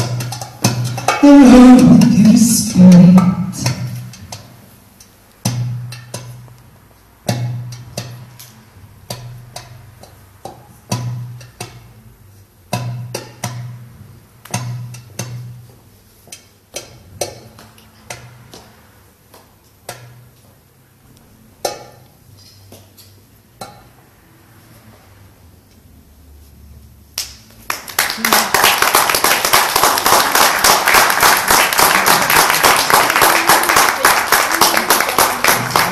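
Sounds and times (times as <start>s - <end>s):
hand drum playing: 0.0s - 4.7s, 31.5s - 35.9s.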